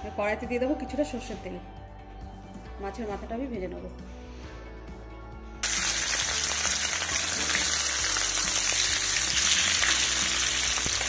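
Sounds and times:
fish frying in hot oil: 5.6s - 11.0s.

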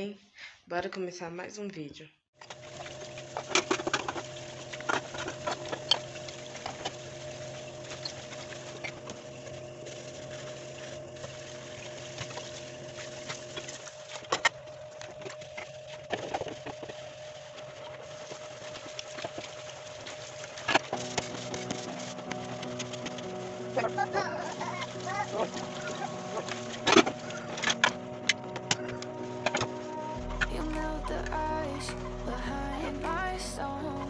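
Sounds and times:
steady mechanical hum: 2.4s - 34.0s.

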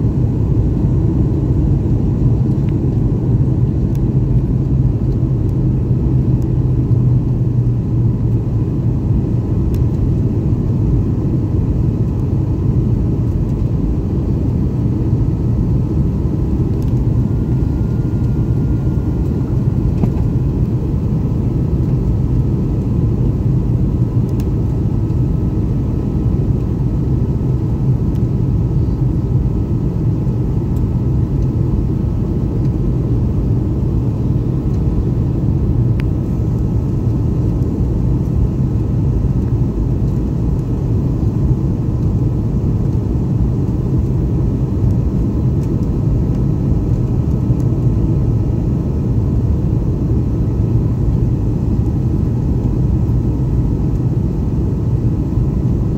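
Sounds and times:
jet engines and rushing air: 0.0s - 55.9s
faint high whine: 13.5s - 26.0s.

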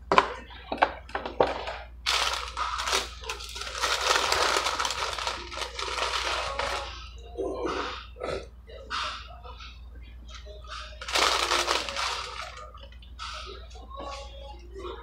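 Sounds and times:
paper bag rustling and crinkling: 2.1s - 6.9s, 11.0s - 12.6s.

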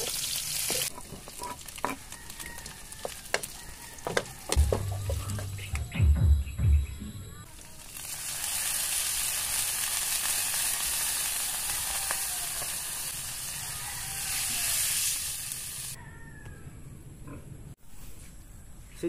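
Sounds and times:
sauce sizzling in a wok: 0.0s - 3.5s, 7.5s - 16.0s.

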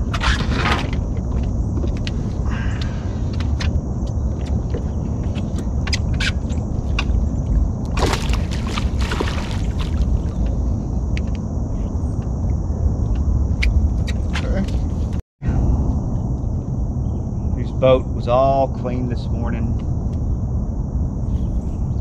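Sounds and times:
steady low rumble: 0.0s - 22.0s
water splashing: 7.9s - 10.3s.

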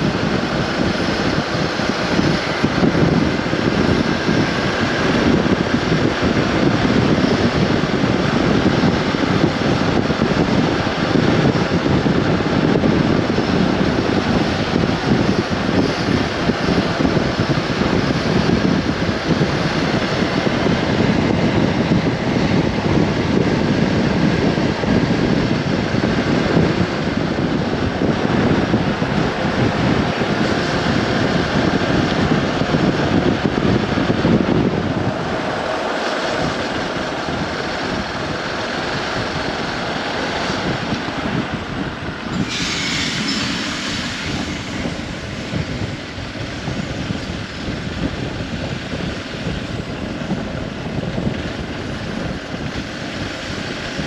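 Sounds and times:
road noise: 0.0s - 54.0s
wind buffeting microphone: 0.0s - 54.0s
high hiss: 42.0s - 47.6s.

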